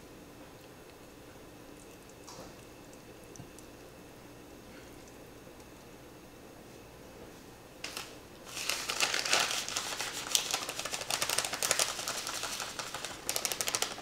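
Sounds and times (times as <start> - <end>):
plastic bag crinkling: 7.8 - 14.0
seeds rattling: 8.5 - 14.0.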